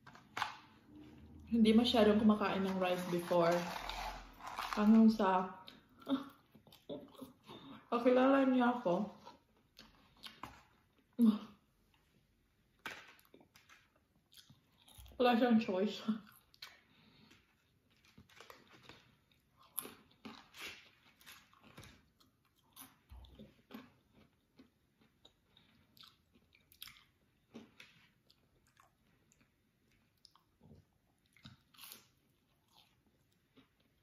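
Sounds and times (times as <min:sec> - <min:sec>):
person chewing crunchy food: 0:13.1 - 0:15.1, 0:16.2 - 0:34.0.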